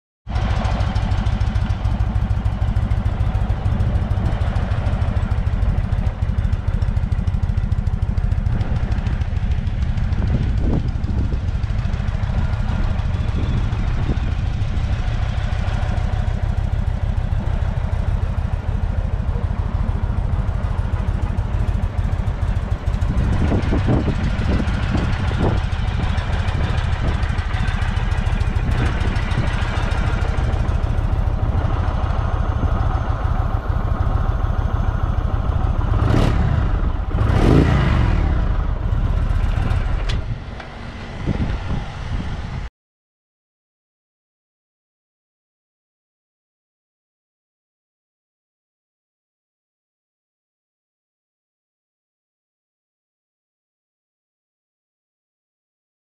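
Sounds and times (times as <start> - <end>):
motorcycle engine idling: 0.3 - 42.6.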